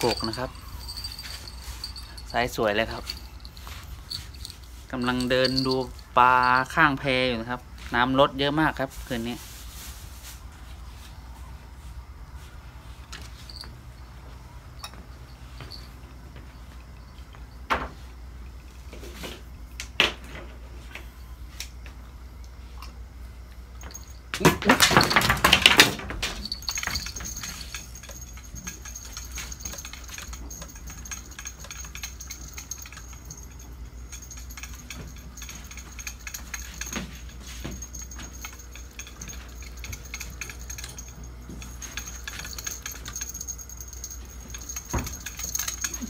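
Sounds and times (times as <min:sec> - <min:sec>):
fishing reel clicking and rattling: 0:00.0 - 0:06.8.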